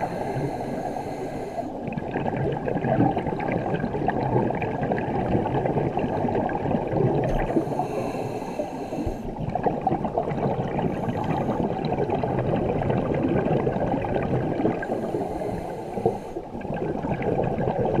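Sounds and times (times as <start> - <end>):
regulator breath hissing: 0.0 - 1.8, 7.4 - 9.3, 14.9 - 16.4
underwater bubbles gurgling: 0.0 - 18.0.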